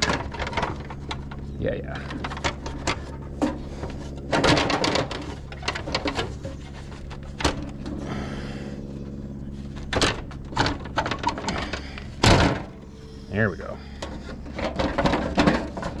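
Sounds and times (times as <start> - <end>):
sheet metal clanking and scraping: 0.0 - 8.0, 13.8 - 16.0
low hum: 0.0 - 16.0.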